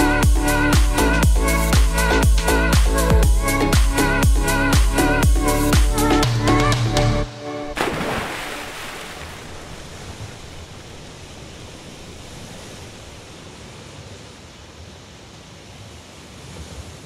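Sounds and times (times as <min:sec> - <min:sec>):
small waves washing on shore: 0:07.8 - 0:17.0.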